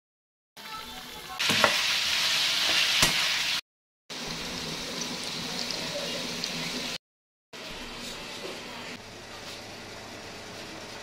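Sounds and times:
meat sizzling in a pan: 0.6 - 7.0.

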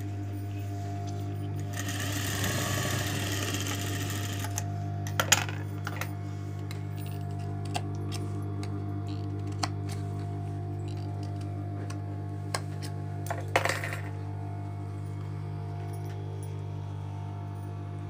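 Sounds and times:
steady low hum: 0.0 - 18.0
sewing machine stitching: 1.6 - 4.6.

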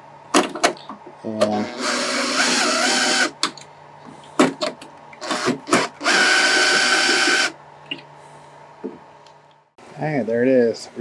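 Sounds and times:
drill motor whining: 1.5 - 3.4, 5.2 - 7.6.

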